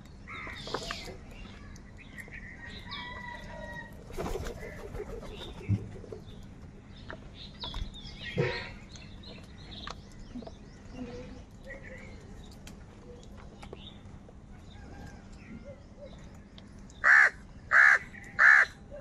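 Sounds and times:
wings flapping: 4.0s - 6.2s
crows calling harshly: 17.0s - 18.8s.

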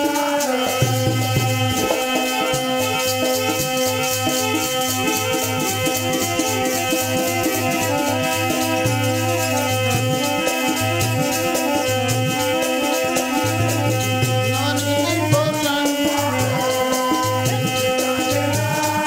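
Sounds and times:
steady drum beat: 12.1s - 19.0s.

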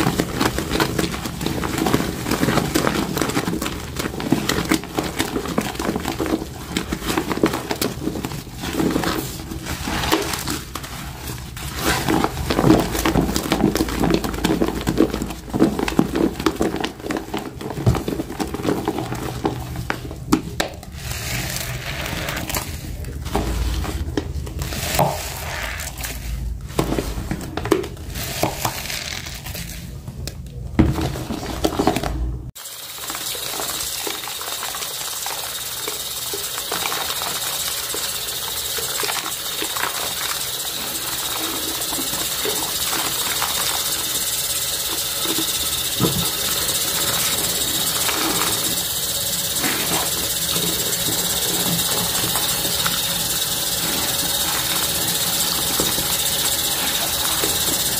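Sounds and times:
sponge scrubbing wet paste: 0.0s - 19.8s, 32.6s - 57.9s.

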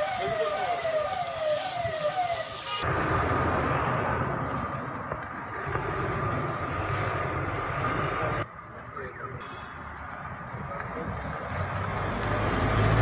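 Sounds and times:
vehicle siren sweeping: 0.0s - 3.0s
traffic rumble and hiss: 0.0s - 13.0s.

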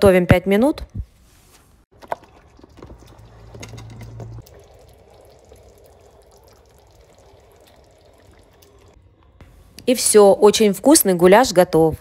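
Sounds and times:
sauce bubbling in a frying pan: 1.9s - 9.0s
wooden spatula stirring sauce: 2.0s - 9.0s.

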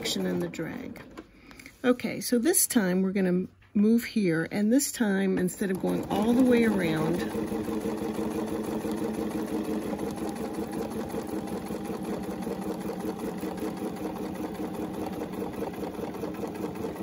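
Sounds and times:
sewing machine running: 0.0s - 1.2s, 5.5s - 17.0s.

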